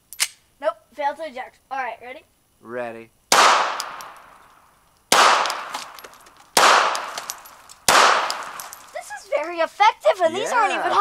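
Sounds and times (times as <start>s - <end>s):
pistol shots with echo: 3.3s - 4.4s, 5.1s - 6.0s, 6.6s - 8.8s.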